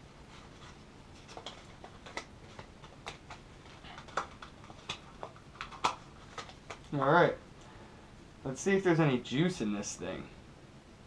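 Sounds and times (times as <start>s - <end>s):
paper rustling and crinkling: 0.3s - 7.0s.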